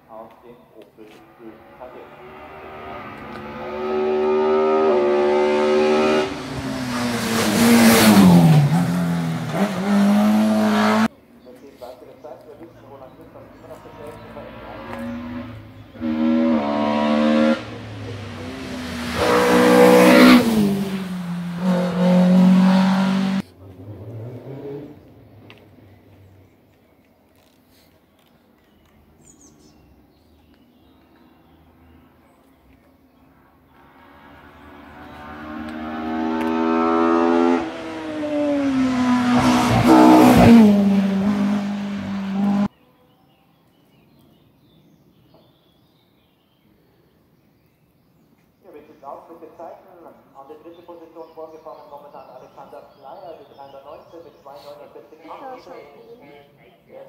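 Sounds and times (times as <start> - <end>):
race car engine revving: 1.2 - 11.1, 13.5 - 25.1, 33.8 - 42.7.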